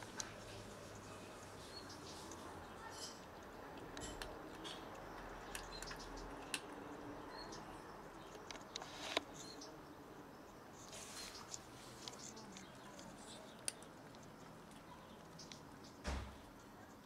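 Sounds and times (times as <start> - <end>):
cats crunching dry kibble: 10.8 - 15.9.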